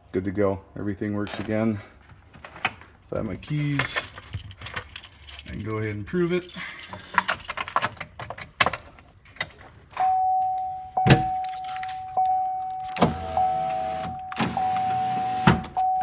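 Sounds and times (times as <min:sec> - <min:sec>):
power window motors whining: 0:12.9 - 0:15.8.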